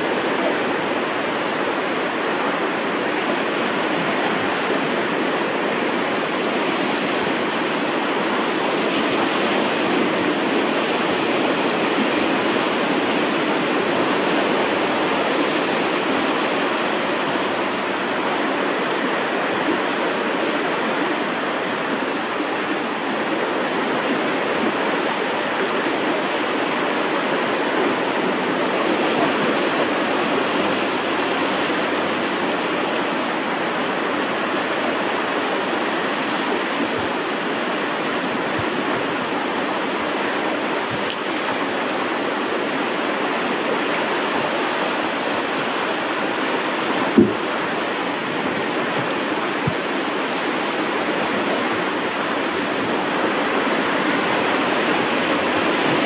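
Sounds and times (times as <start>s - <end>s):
ocean surf on rocks: 0.0s - 56.0s.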